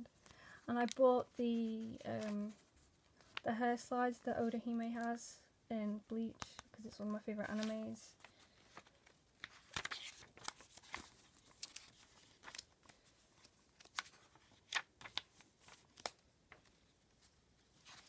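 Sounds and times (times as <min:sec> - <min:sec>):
paper pages turning: 0:00.2 - 0:03.5, 0:07.4 - 0:18.0.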